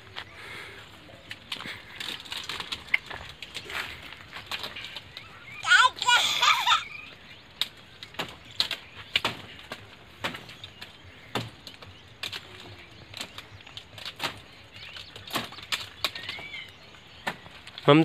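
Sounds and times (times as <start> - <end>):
blade chopping plant stems: 7.6 - 17.8.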